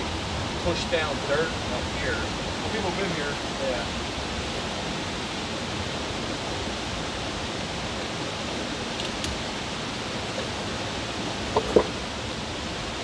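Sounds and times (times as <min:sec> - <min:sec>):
water rushing through culvert: 0:00.0 - 0:13.0.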